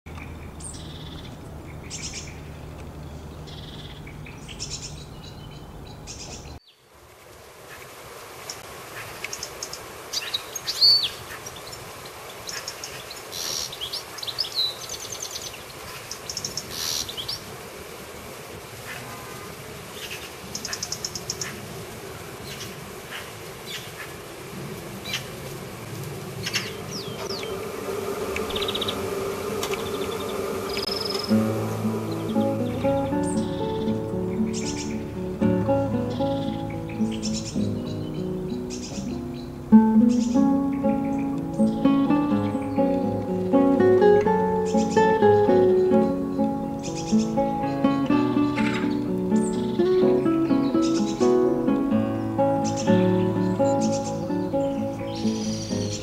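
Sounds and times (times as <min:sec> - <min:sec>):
small birds chirping: 0:00.1 - 0:06.9, 0:08.4 - 0:17.5, 0:26.3 - 0:56.0
steady low hum: 0:27.2 - 0:37.8.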